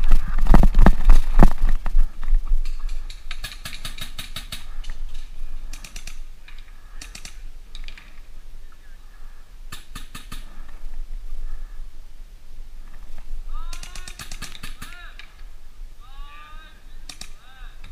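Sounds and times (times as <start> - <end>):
paintball markers firing: 2.6 - 4.9, 5.7 - 8.2, 9.7 - 10.7, 13.6 - 15.4, 17.0 - 17.9.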